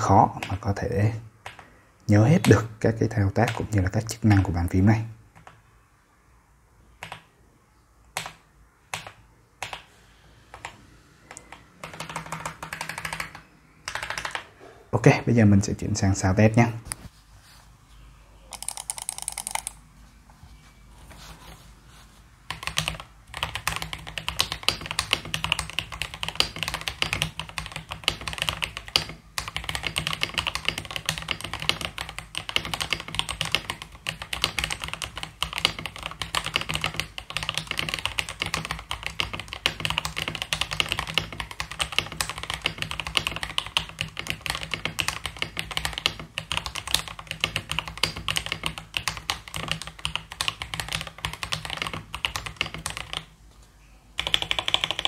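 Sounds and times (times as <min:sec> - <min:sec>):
fast mechanical keyboard typing: 0:10.5 - 0:14.5, 0:18.5 - 0:19.8, 0:22.5 - 0:53.3, 0:54.2 - 0:55.0.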